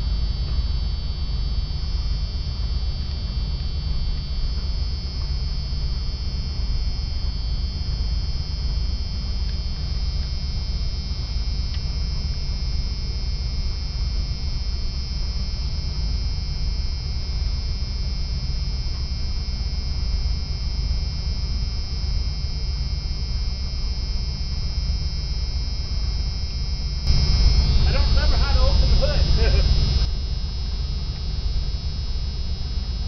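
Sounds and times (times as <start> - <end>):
thin high whine: 0.0 - 33.0
engine and road rumble: 26.9 - 32.8.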